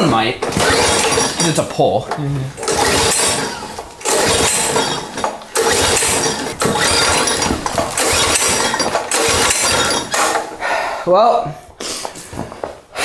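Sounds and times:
recoil pull starter cranking: 0.4 - 10.6.

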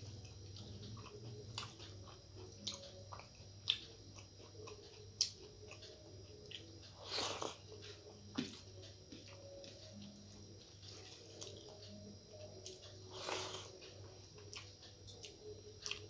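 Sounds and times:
wet chewing: 0.2 - 7.6, 14.4 - 16.0.

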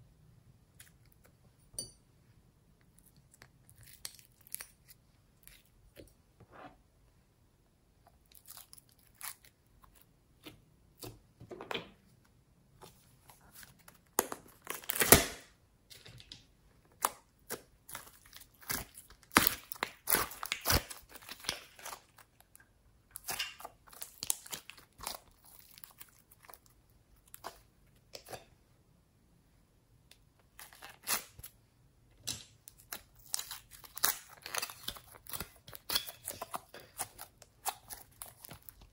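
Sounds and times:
slime crackling and popping: 17.0 - 22.3.

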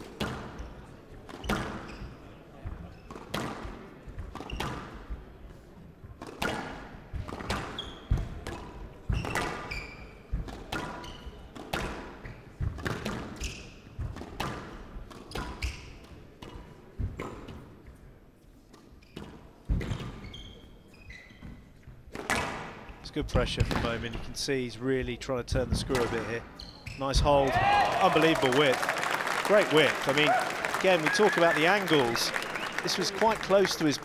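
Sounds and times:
shoes squeaking on court floor: 0.2 - 3.6, 7.4 - 8.4, 9.0 - 14.2, 15.1 - 17.7, 18.7 - 22.5, 26.0 - 27.4
squash ball struck by rackets: 3.2 - 3.8, 6.2 - 9.7, 11.6 - 13.4, 22.1 - 22.8.

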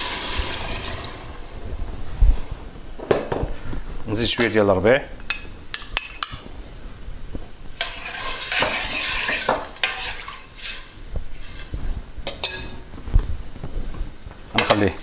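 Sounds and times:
spoon stirring and scraping pot: 7.7 - 12.8.

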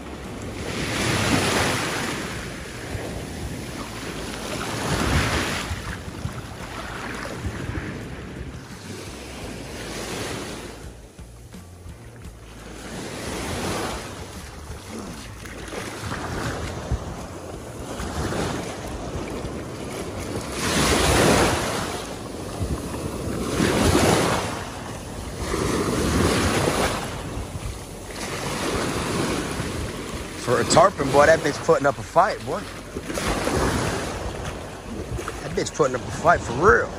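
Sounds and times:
ocean surf washing: 0.0 - 36.9
wind rumbling on microphone: 0.0 - 36.9.

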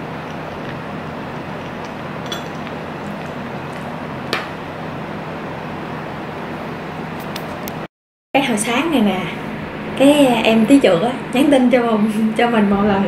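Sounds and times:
steady background hum: 0.0 - 13.0
spoon clinking ceramic bowl: 2.2 - 3.3.

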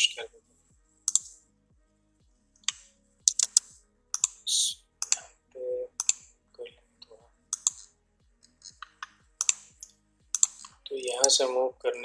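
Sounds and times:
computer mouse clicks: 1.0 - 1.4, 2.6 - 5.3, 6.0 - 6.3, 7.5 - 7.9, 8.7 - 11.4.

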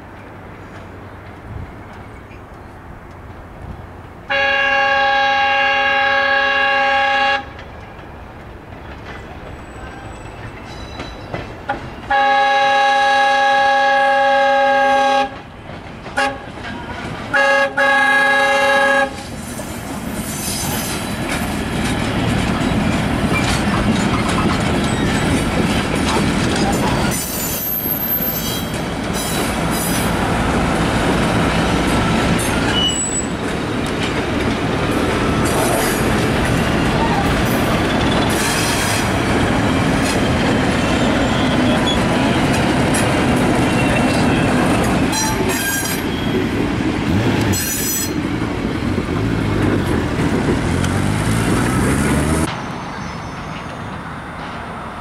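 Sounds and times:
train wheels rumbling over rails: 0.0 - 55.0
train horn blasts: 4.3 - 7.6, 12.1 - 15.4, 16.2 - 16.5, 17.3 - 19.2.

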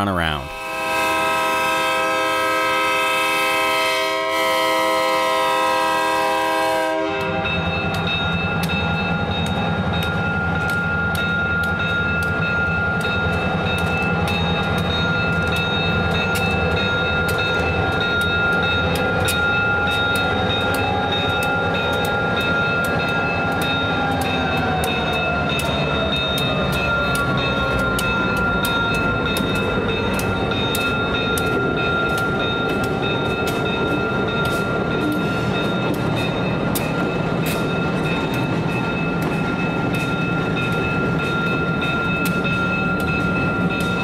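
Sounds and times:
locomotive air horn: 0.5 - 7.5
bell ringing: 7.5 - 44.0.

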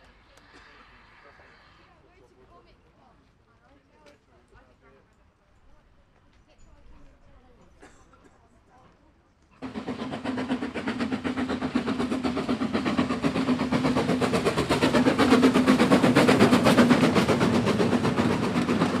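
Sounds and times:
steam locomotive passing: 0.0 - 3.0, 9.6 - 19.0.

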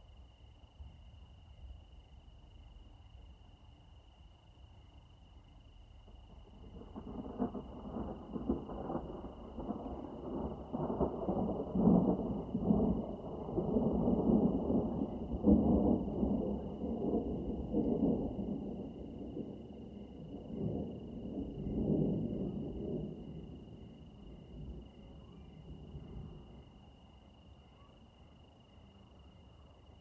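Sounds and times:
rolling thunder: 6.1 - 26.8.

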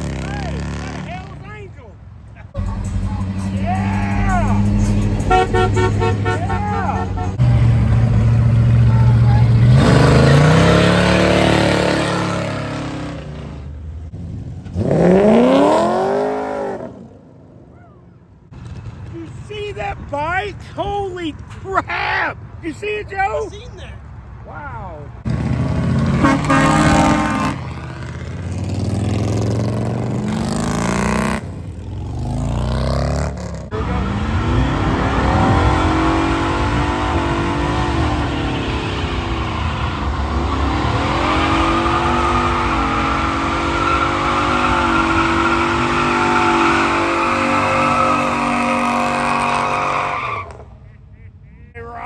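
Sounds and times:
vehicles driving past: 0.0 - 52.0
car engine at high revs: 7.4 - 17.2, 25.3 - 49.9
tires hissing and squealing: 33.7 - 50.8.

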